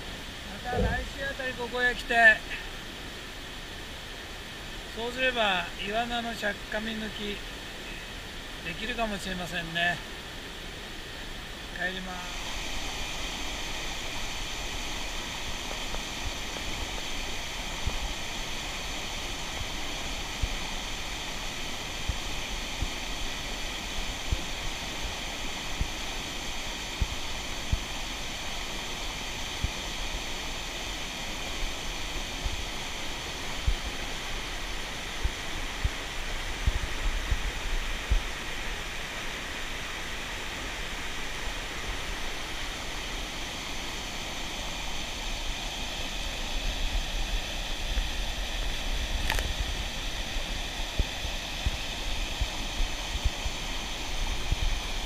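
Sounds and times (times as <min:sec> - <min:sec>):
stream water rushing: 0:00.0 - 0:55.0
low thumps: 0:00.7 - 0:01.2.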